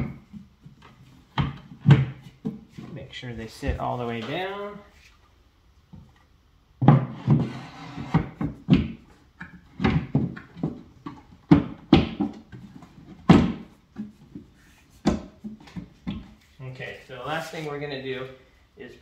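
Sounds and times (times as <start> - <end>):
wooden shelves knocking: 0.0 - 2.8, 6.8 - 14.2, 15.0 - 16.4.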